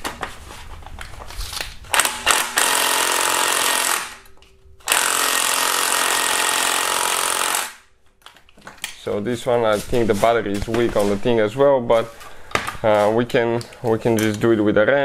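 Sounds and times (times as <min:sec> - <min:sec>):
cordless power tool rattling: 0:01.9 - 0:04.2, 0:04.8 - 0:07.8.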